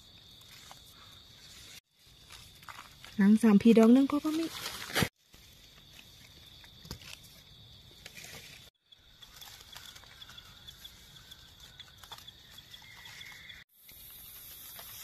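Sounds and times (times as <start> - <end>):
dry leaves and twigs crackling: 0.0 - 15.0
high pulsing insect trill: 8.8 - 15.0.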